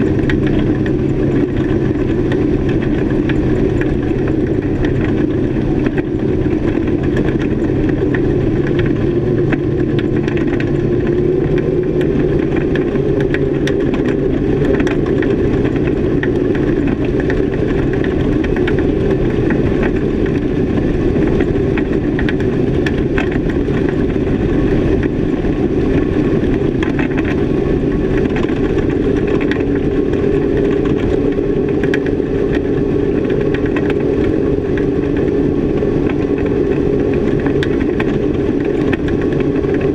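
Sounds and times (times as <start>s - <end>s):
outboard motors running: 0.0s - 39.9s.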